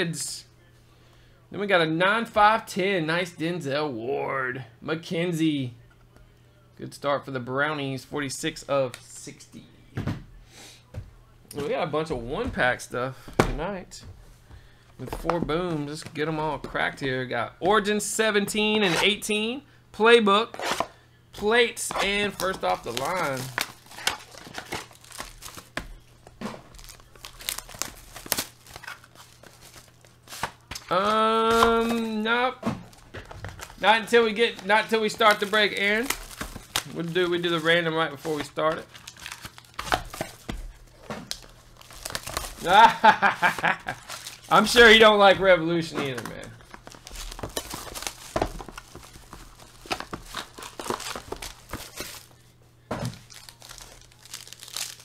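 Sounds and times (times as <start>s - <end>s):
plastic wrapping crinkling: 21.9s - 52.4s, 53.0s - 55.0s
packs tapping on table: 46.1s - 52.3s.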